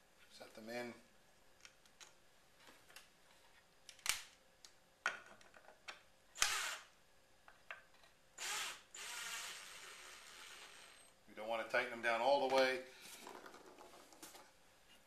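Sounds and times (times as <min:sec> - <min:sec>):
drill driving screw into wood: 0:06.4 - 0:06.9, 0:08.4 - 0:11.1.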